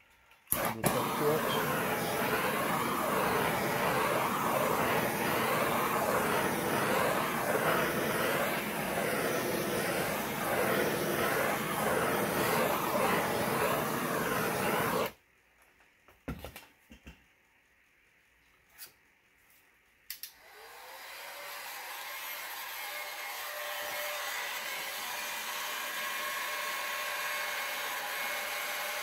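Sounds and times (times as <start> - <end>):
gas torch flame hissing: 0.5 - 15.2.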